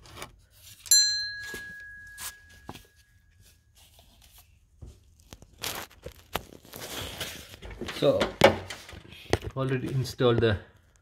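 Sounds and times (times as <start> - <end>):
light metal clinks and rubs: 0.7 - 4.0
metal tool ringing on metal: 0.9 - 3.1.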